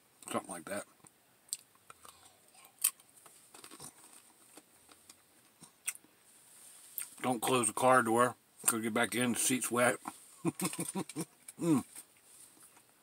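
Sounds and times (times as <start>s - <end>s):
man chewing food: 1.0s - 6.1s, 10.0s - 13.0s.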